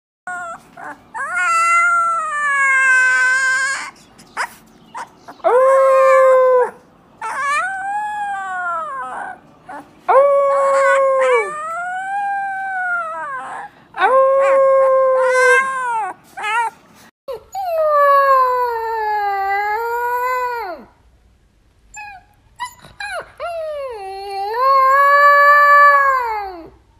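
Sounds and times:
puppies howling: 0.3 - 16.7.

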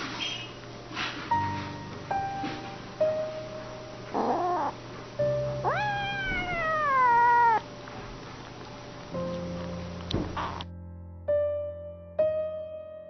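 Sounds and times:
kitten meowing: 4.1 - 4.8, 5.5 - 7.7.

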